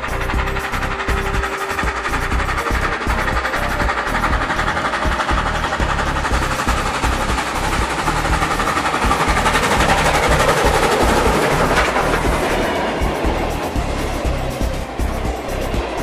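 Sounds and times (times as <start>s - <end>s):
model train wheels clickety-clack: 0.0s - 16.0s.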